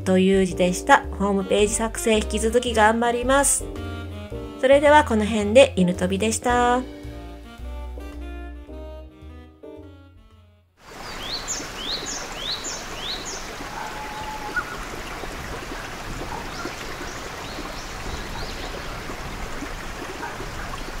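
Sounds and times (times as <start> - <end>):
stream water running: 10.8 - 21.0
birds calling: 10.9 - 21.0.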